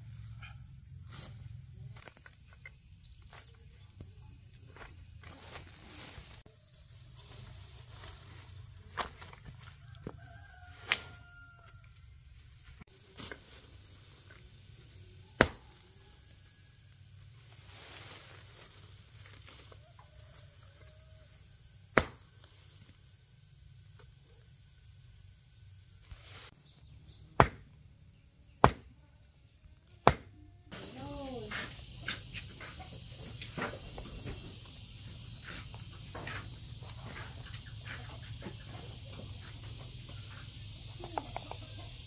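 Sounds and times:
sharp knocks or chops: 22.0 - 22.2, 27.4 - 27.6, 28.6 - 28.9, 30.0 - 30.3
high-pitched insect drone: 30.7 - 42.0.

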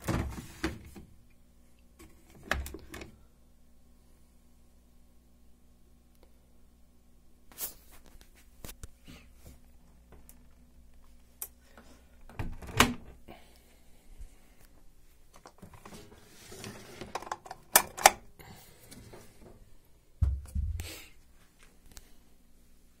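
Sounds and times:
dull low thud: 20.2 - 20.9.

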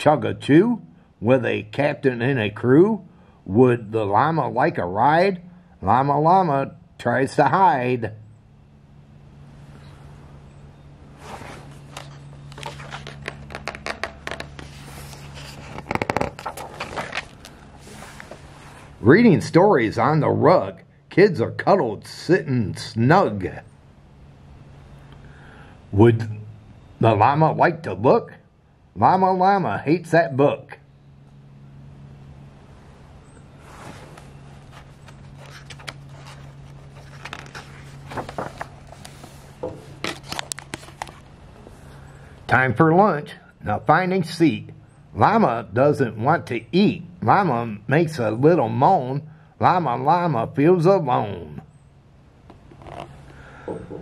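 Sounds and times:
steady low hum: 0.0 - 54.0
book pages rustling: 11.1 - 19.0, 33.6 - 41.8, 52.5 - 53.3.

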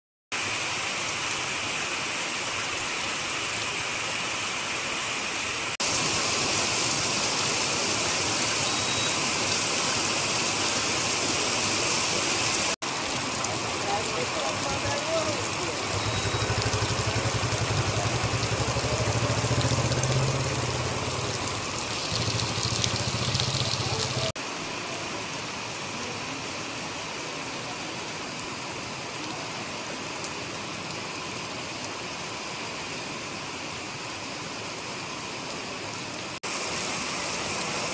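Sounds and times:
rain falling on puddle: 5.6 - 37.9.

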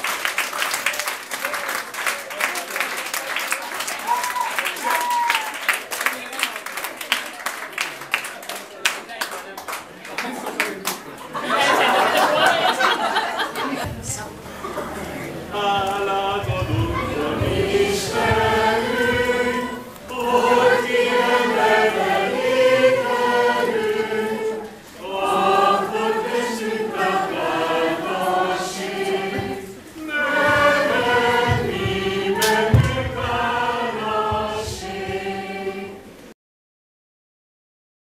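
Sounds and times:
choir singing slow song: 11.6 - 36.4.

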